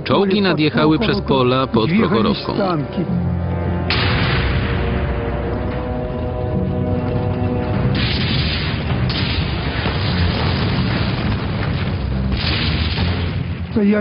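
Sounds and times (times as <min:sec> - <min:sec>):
background music: 0:00.0 - 0:14.0
explosion booms: 0:03.9 - 0:05.1, 0:07.9 - 0:13.8.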